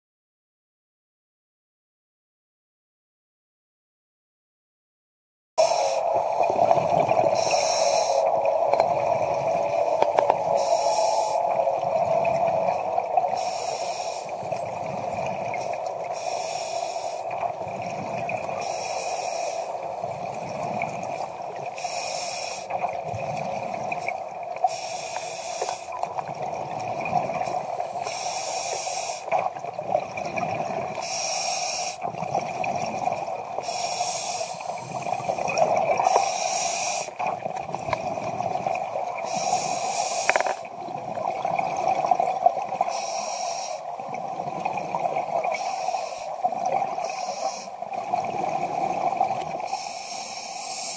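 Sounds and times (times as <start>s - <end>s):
regulator hissing inhalation: 7.3s - 8.4s, 9.8s - 11.6s, 13.3s - 14.4s, 16.1s - 17.3s, 18.6s - 19.8s, 21.8s - 22.7s, 24.6s - 26.0s, 27.8s - 29.3s, 31.0s - 32.0s, 33.6s - 35.0s, 36.0s - 37.2s, 39.2s - 40.6s, 42.9s - 43.9s, 45.6s - 46.4s, 47.0s - 47.8s, 49.6s - 50.9s
bubbling exhalations: 37.2s - 42.6s.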